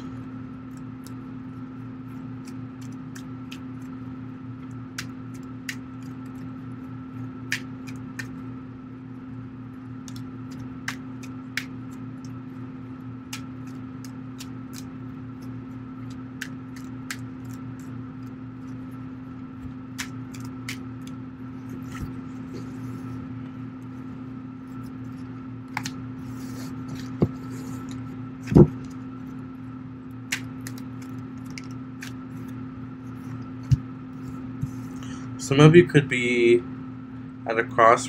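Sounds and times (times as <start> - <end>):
electrical hum: 0.0 - 38.0
cards shuffling and clicking: 13.3 - 23.0, 24.7 - 29.1, 30.3 - 35.0.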